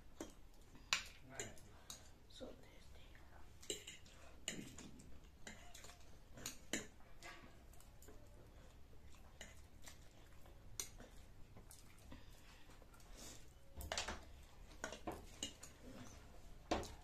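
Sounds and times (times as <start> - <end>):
noodles slurped and chewed: 3.4 - 13.6
fork and chopsticks clicking on plates: 3.6 - 8.2, 10.7 - 11.2, 14.7 - 17.0.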